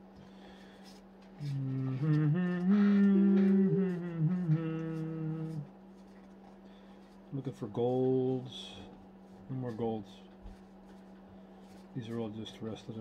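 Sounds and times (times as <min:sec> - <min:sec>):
person humming a tune: 0:01.4 - 0:05.7.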